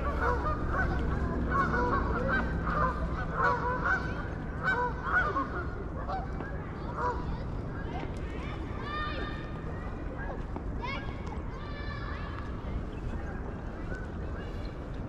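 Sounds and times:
geese honking: 0:00.0 - 0:06.3
steady low rumble: 0:00.0 - 0:15.0.

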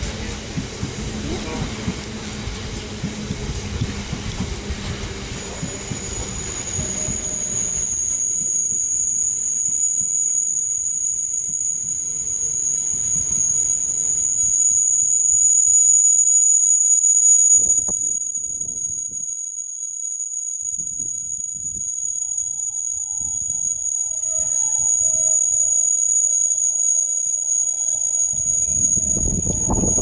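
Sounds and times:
freight train rumble and clatter: 0:00.0 - 0:07.9
high squeal of train wheels: 0:00.0 - 0:30.0.

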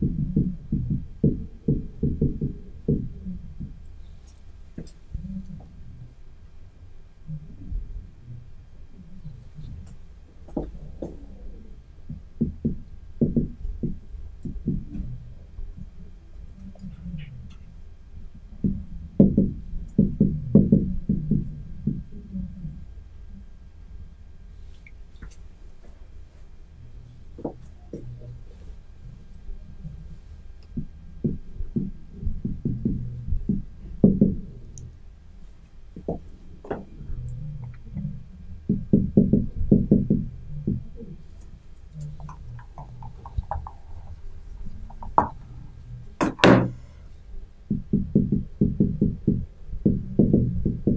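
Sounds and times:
marker pen tapping on whiteboard: 0:42.2 - 0:43.8, 0:44.9 - 0:45.4.

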